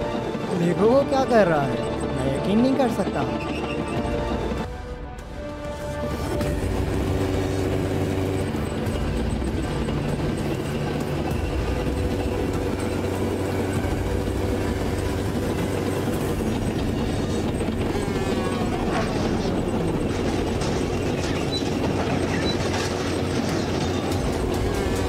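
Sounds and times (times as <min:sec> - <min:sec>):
track clatter: 0:00.0 - 0:04.7, 0:05.8 - 0:25.0
tank engines and tracks: 0:00.0 - 0:25.0
motorcycle engine: 0:06.0 - 0:25.0.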